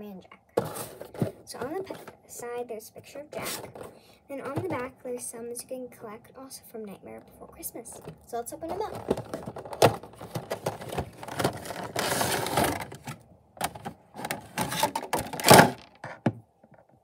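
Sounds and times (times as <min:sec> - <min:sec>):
packaging crinkling and scraping: 0:00.6 - 0:02.2, 0:08.7 - 0:16.0.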